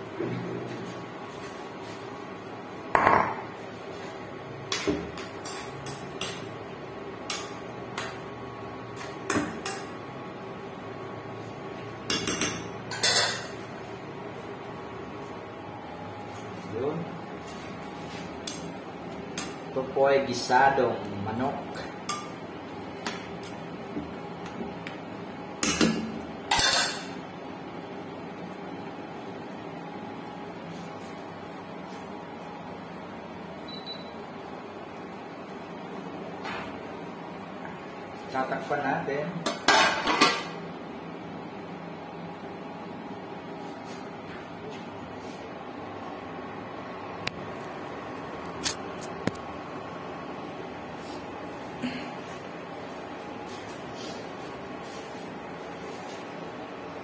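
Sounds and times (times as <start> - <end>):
ceramic bowl thump on counter: 3.0 - 3.4.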